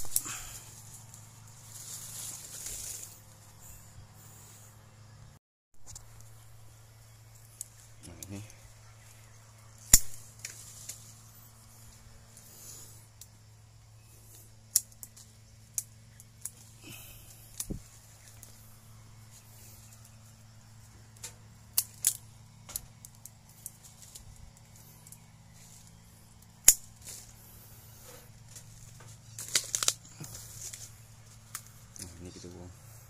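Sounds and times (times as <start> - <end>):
pruning shears snipping branches: 0.0 - 3.3, 9.7 - 13.4, 14.2 - 32.7.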